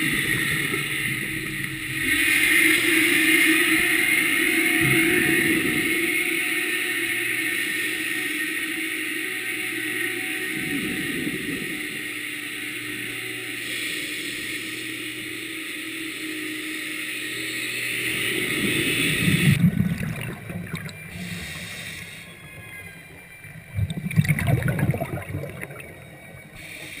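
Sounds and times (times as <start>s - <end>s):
steady hum: 0.0s - 27.0s
bubbles gurgling underwater: 19.2s - 21.3s, 23.6s - 26.1s.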